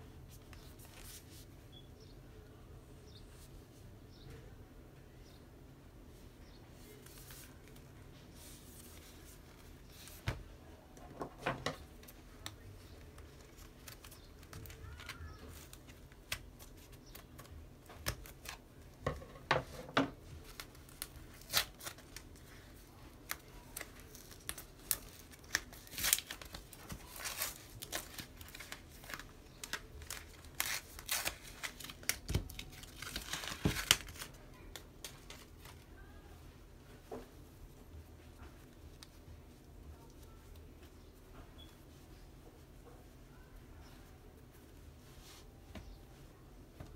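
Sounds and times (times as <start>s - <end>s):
cardboard rustling and crinkling: 11.3s - 36.0s.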